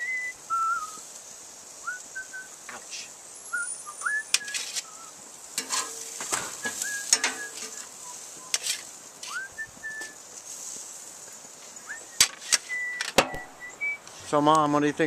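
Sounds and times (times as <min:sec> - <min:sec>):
burgers sizzling: 0:00.0 - 0:15.0
high chirps: 0:01.8 - 0:10.4, 0:11.2 - 0:14.4
metal spatula scraping grill grate: 0:03.6 - 0:14.4.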